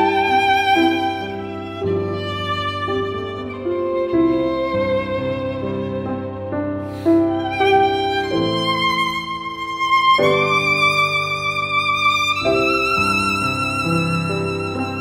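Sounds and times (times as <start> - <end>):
slow instrumental music: 0.0 - 15.0.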